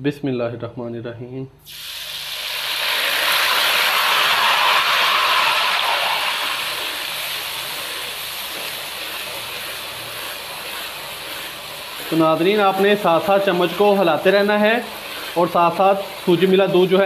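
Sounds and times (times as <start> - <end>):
milk sizzling in hot fat: 1.6 - 17.0.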